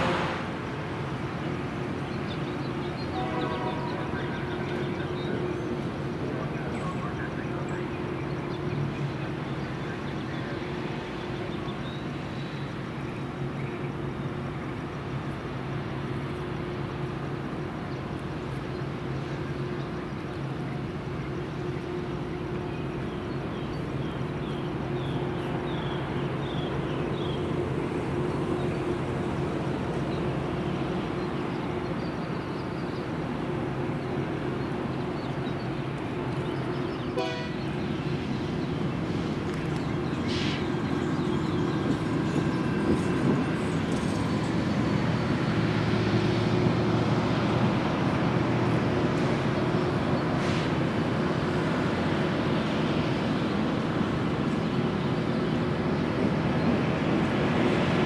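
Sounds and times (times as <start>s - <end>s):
diesel locomotive engine drone: 0.0s - 58.0s.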